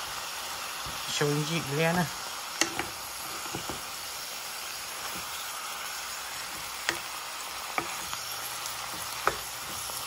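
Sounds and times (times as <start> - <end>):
greens sizzling in a pan: 0.0 - 10.0
wooden spatula knocking pan: 6.5 - 7.1, 7.7 - 8.2, 8.8 - 10.0.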